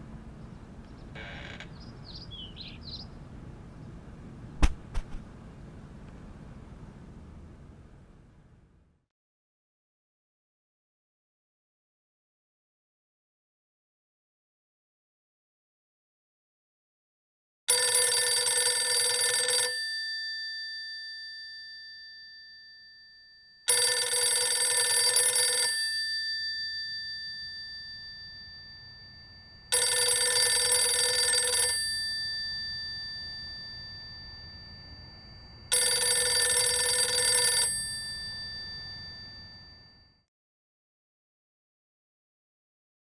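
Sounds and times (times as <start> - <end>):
telephone bell ringing: 17.7 - 40.3.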